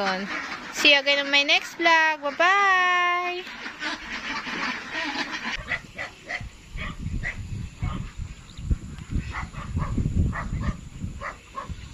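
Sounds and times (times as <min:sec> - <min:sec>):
wind rumbling on microphone: 0:05.6 - 0:11.9.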